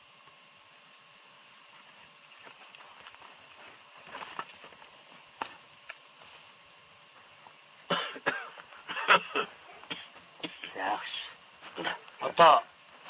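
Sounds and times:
person coughing loudly: 7.9s - 10.9s.

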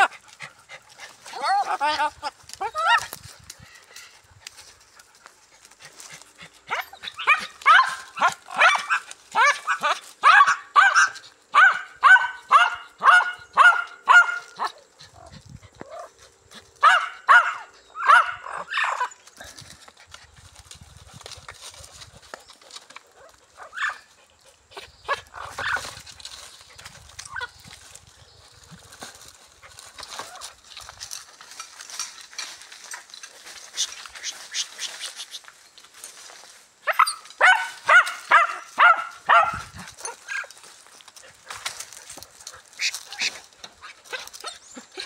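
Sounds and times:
dog barking: 6.7s - 14.8s, 16.8s - 19.1s, 23.6s - 24.1s, 36.9s - 40.4s.

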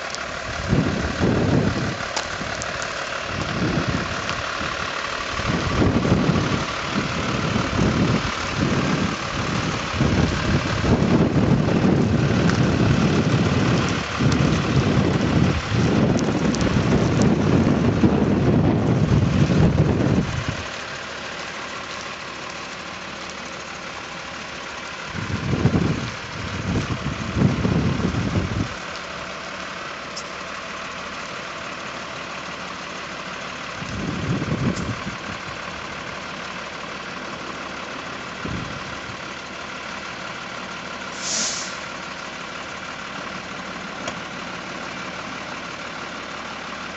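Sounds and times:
lorry diesel engine idling: 0.0s - 46.9s
wind buffeting microphone: 0.5s - 20.7s, 25.1s - 28.8s, 33.8s - 35.6s, 38.4s - 39.2s.

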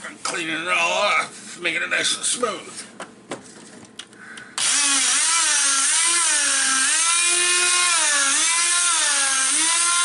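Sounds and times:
oscillating multi-tool sanding: 4.6s - 10.0s.

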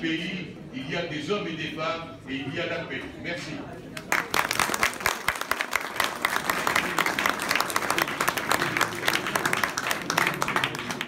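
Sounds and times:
crowd applauding: 4.0s - 11.0s.

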